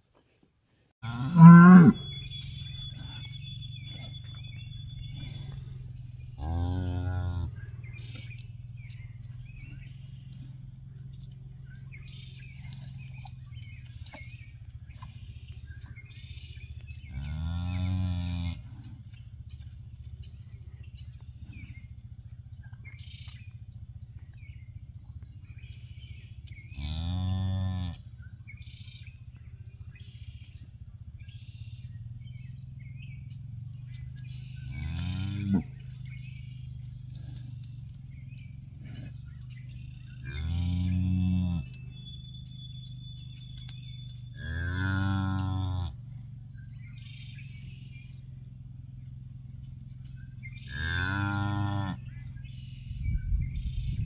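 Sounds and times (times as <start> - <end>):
cow mooing: 1.0 - 8.9, 17.1 - 18.9, 26.7 - 28.1, 34.5 - 35.9, 40.0 - 42.0, 44.3 - 46.0, 50.5 - 52.2
small birds chirping: 1.1 - 54.0.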